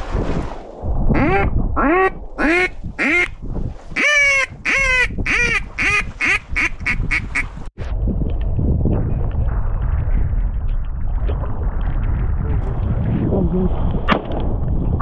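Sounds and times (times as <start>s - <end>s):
wind: 0.0s - 15.0s
duck call quacks: 1.2s - 3.3s, 4.0s - 7.5s.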